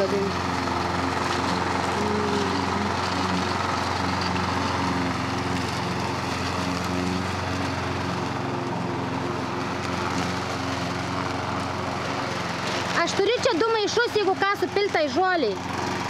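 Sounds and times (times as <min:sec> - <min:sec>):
lawn mower engine running: 0:00.0 - 0:16.0.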